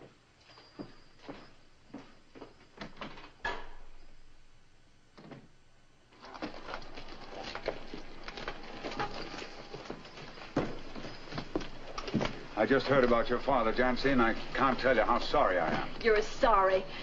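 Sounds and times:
hooves clattering: 0:06.2 - 0:16.9
footsteps on wooden boards: 0:06.5 - 0:14.8.

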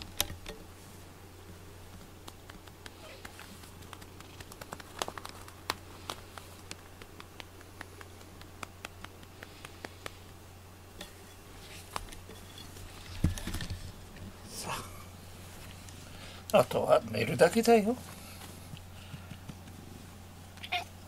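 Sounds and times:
hand stroking cat fur: 0:01.8 - 0:10.4, 0:17.9 - 0:20.2
rustle and thump: 0:11.0 - 0:14.0.

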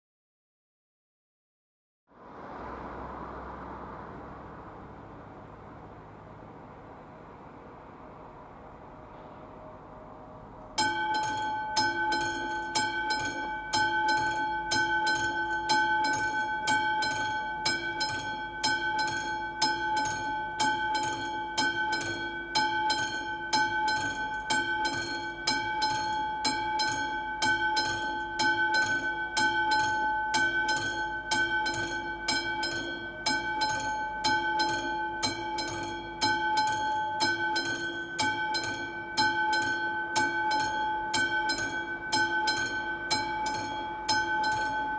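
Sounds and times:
level crossing warning bell: 0:09.5 - 0:44.9.

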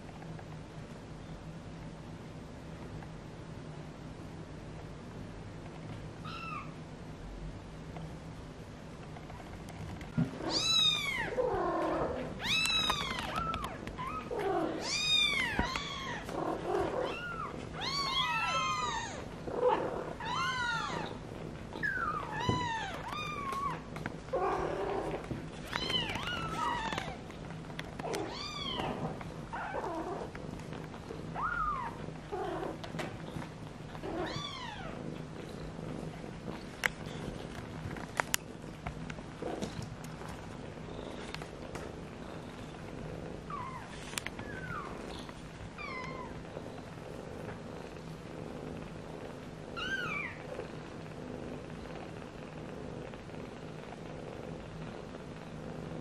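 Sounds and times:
cat purring: 0:09.0 - 0:56.0.

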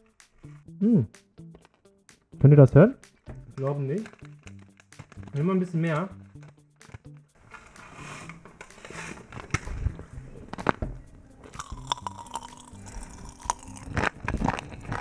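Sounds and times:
popping candy crackling: 0:03.6 - 0:05.4, 0:09.3 - 0:15.0.

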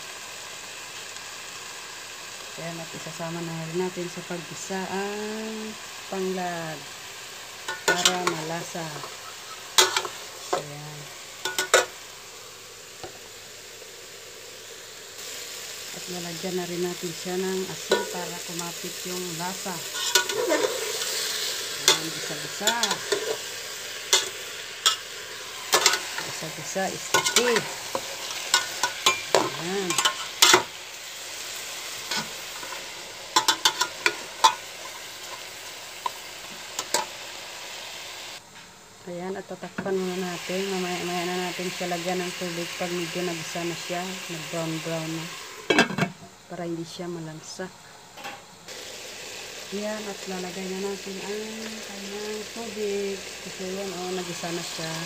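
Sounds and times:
chicken sizzling in a pot: 0:00.0 - 0:55.0.

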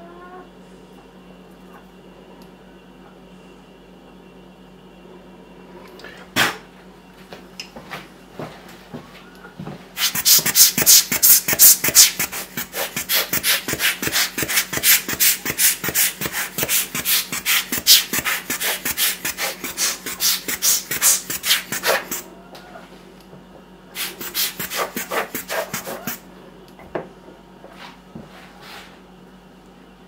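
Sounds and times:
brush scrubbing mushroom cap: 0:10.0 - 0:22.2, 0:24.0 - 0:26.2.

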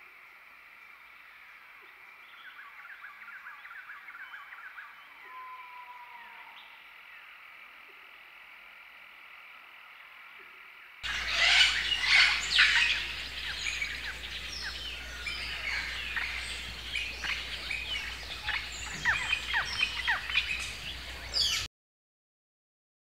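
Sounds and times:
birds chirping: 0:11.0 - 0:21.7
low steady hum: 0:11.0 - 0:21.7.

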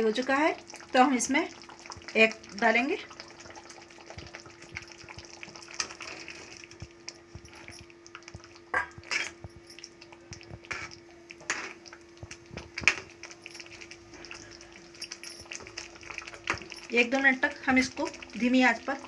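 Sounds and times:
eggs sizzling in gravy: 0:00.0 - 0:19.0
spatula stirring: 0:00.4 - 0:19.0.

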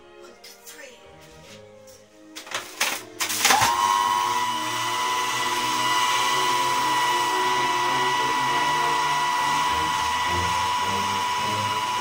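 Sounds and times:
food processor motor whining: 0:03.2 - 0:12.0.

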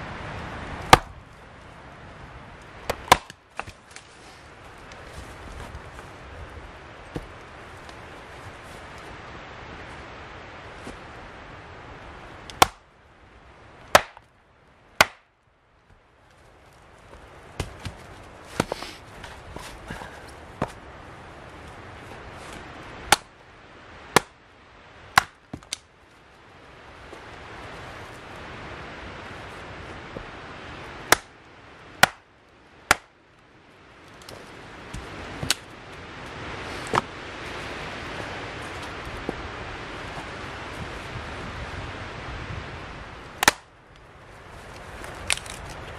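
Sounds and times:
hatchet chopping log: 0:00.9 - 0:01.2, 0:02.8 - 0:03.8, 0:12.5 - 0:12.9, 0:13.9 - 0:14.3, 0:15.0 - 0:15.3, 0:17.6 - 0:19.0, 0:23.1 - 0:23.4, 0:24.1 - 0:24.4, 0:25.1 - 0:25.9, 0:31.1 - 0:31.4, 0:32.0 - 0:32.3, 0:32.9 - 0:33.2, 0:34.2 - 0:35.7, 0:43.4 - 0:43.7.

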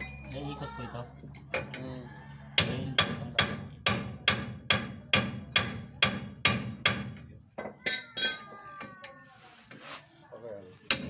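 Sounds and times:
hammer striking metal: 0:02.6 - 0:07.2
metallic clinks: 0:07.8 - 0:09.2.

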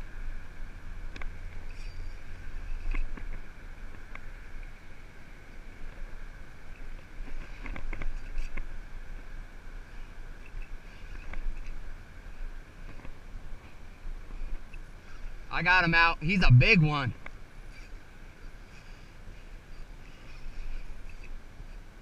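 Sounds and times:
wind rumbling on microphone: 0:00.0 - 0:18.4.

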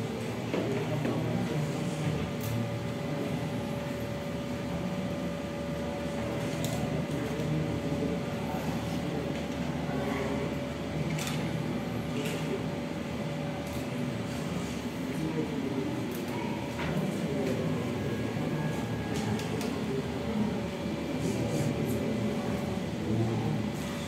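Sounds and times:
low indistinct murmur: 0:00.0 - 0:24.0
room hum: 0:00.0 - 0:24.0.

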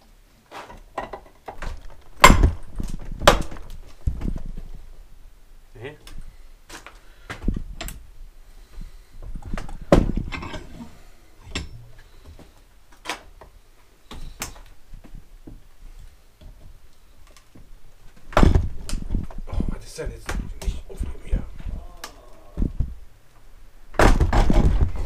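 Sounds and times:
metal tools clattering on workbench: 0:10.3 - 0:10.8.

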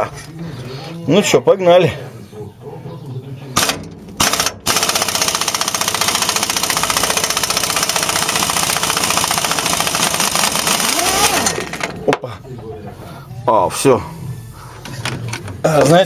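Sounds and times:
impact wrench hammering: 0:03.6 - 0:12.0.

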